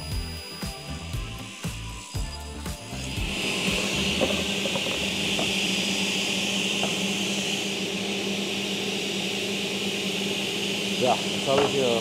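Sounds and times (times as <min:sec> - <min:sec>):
woodworking machine running: 0:00.0 - 0:12.0.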